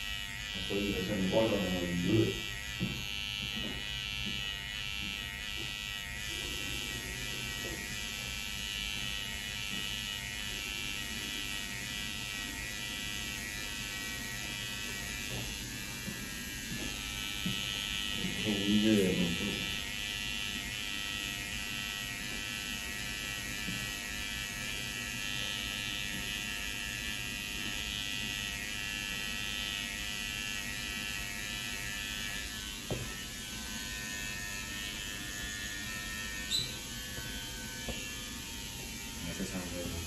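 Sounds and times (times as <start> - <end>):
electric hair clippers buzzing: 0.0 - 40.0.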